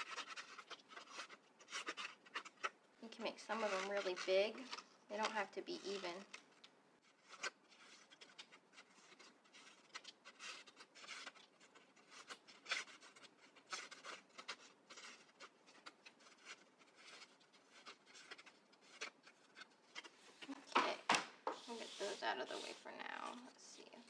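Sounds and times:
scissors snipping paper: 0:00.0 - 0:06.4
paper sheet rustling: 0:00.0 - 0:24.0.

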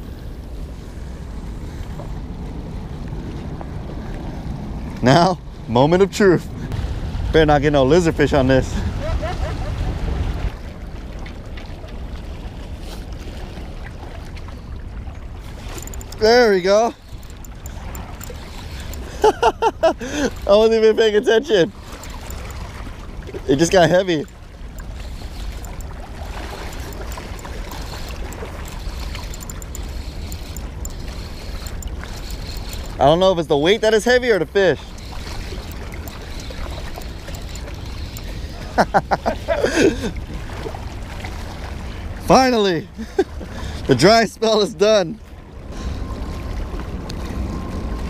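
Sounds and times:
wind rumble on microphone: 0:00.0 - 0:16.3
waves lapping against rocks: 0:07.7 - 0:44.2
small water splashes: 0:08.8 - 0:42.3.

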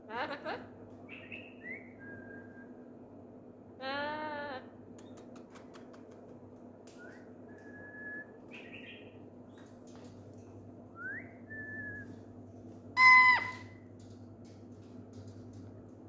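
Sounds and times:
harsh parrot call: 0:13.0 - 0:13.7
parrot whistling: 0:13.0 - 0:13.7.

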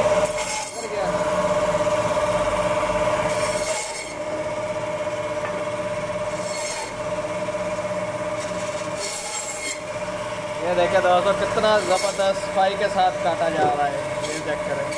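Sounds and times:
band saw whining: 0:00.0 - 0:14.9
blade rasping through meat and bone: 0:03.2 - 0:04.3, 0:06.3 - 0:07.0, 0:08.3 - 0:10.0, 0:11.4 - 0:12.6, 0:13.7 - 0:14.9.

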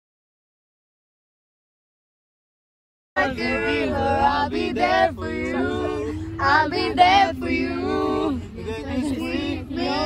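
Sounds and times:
car low rumble: 0:03.2 - 0:10.0
voices singing together: 0:03.2 - 0:10.0.

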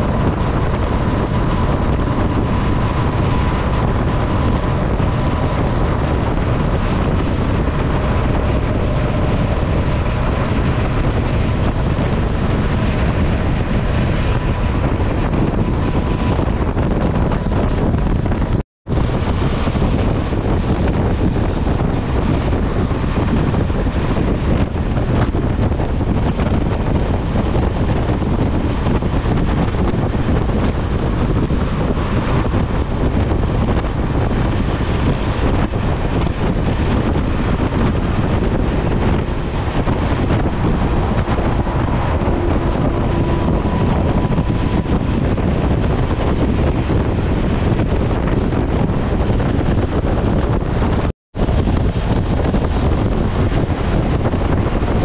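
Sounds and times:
motorcycle engine and tyre noise: 0:00.0 - 0:55.0
wind rush on microphone: 0:00.0 - 0:55.0.

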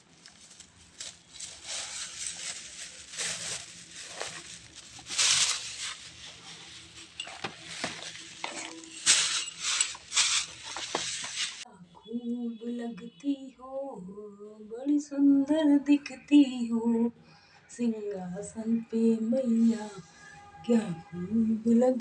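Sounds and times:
plastic bag rustling: 0:00.0 - 0:11.7.

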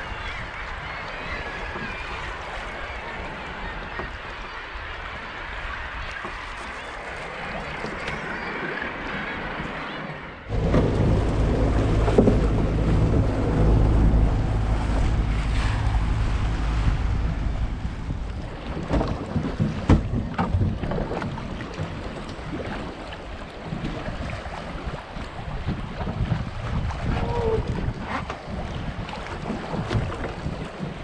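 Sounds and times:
sea: 0:00.0 - 0:31.0
motorboat engine humming: 0:10.5 - 0:31.0
wind buffeting the microphone: 0:10.5 - 0:31.0.

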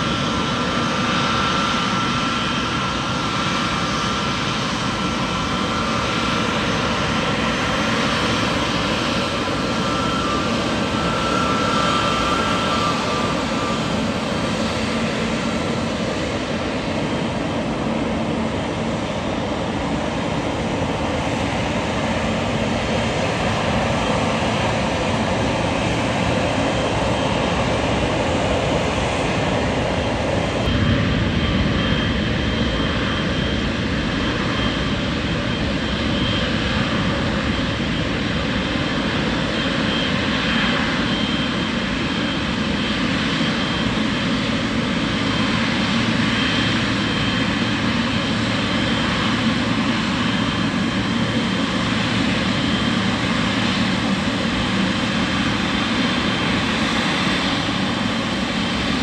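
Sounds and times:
jet engines rushing: 0:00.0 - 0:59.0
thin engine whine: 0:30.3 - 0:59.0.

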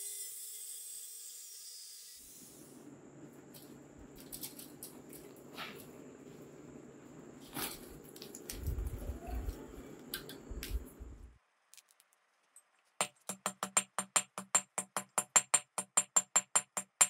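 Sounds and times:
steady low hum: 0:02.6 - 0:11.4
light crackles: 0:07.4 - 0:13.0.

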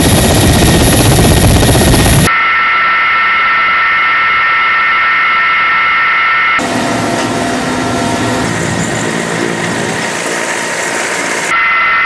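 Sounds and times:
helicopter cabin drone: 0:00.0 - 0:12.0
helicopter turbine whine: 0:00.0 - 0:12.0
rushing noise: 0:06.6 - 0:12.0.

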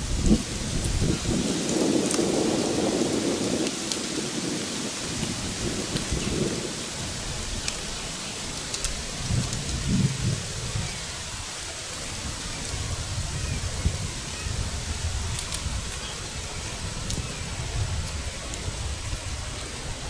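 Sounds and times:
steady hiss: 0:00.0 - 0:20.0
wind rumbling on microphone: 0:00.0 - 0:20.0
faint clicks: 0:08.5 - 0:09.9.

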